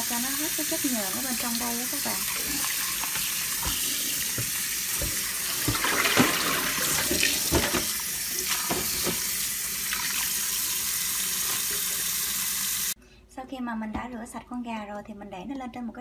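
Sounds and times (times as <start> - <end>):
water splashing and sloshing: 1.4 - 10.4.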